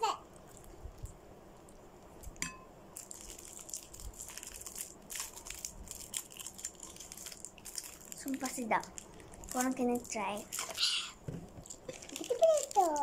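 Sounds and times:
plastic wrapper crinkling: 0:02.9 - 0:13.0.

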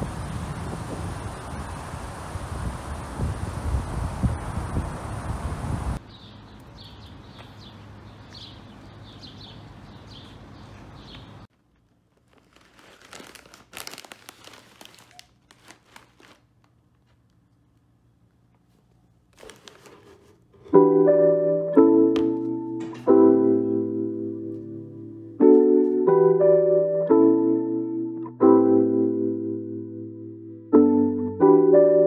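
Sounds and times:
plastic bag crinkling: 0:11.5 - 0:17.4, 0:19.3 - 0:20.2
piano music: 0:20.6 - 0:32.0.

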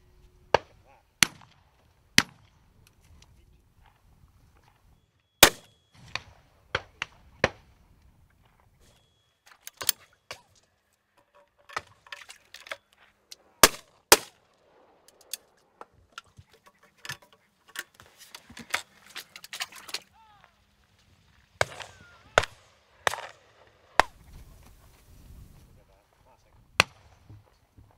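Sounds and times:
shotgun shots: 0:05.4 - 0:07.7, 0:13.6 - 0:15.0, 0:21.6 - 0:24.3
gun reloading clicks and knocks: 0:08.8 - 0:14.4, 0:15.0 - 0:20.0.

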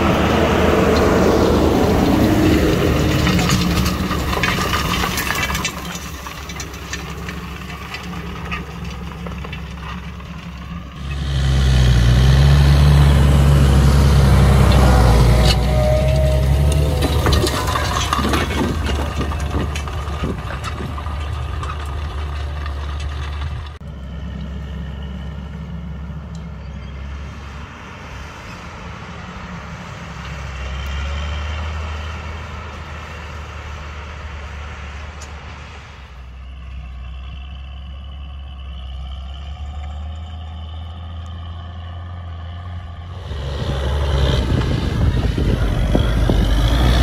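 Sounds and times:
tractor diesel engine pulling hard: 0:00.0 - 0:47.0
harrow discs clattering in soil: 0:00.8 - 0:13.0, 0:13.7 - 0:26.9.

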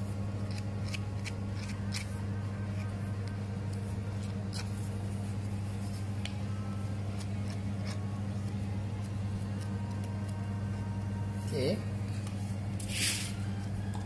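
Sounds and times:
low hum: 0:00.0 - 0:14.0
scraper spreading on bread: 0:12.8 - 0:13.4.

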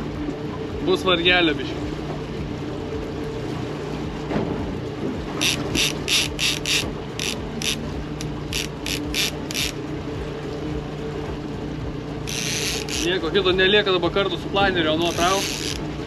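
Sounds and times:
boat engine hum: 0:00.0 - 0:16.0
fishing reel clicking: 0:05.4 - 0:09.8, 0:12.3 - 0:13.2, 0:15.1 - 0:15.8.

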